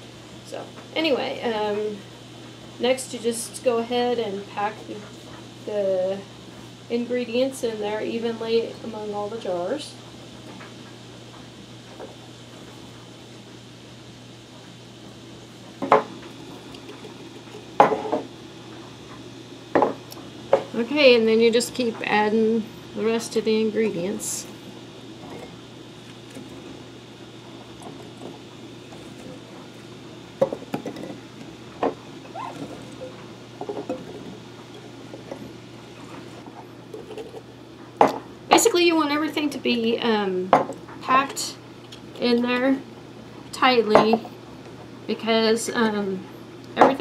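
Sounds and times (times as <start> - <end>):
low steady hum: 0.0 - 47.0.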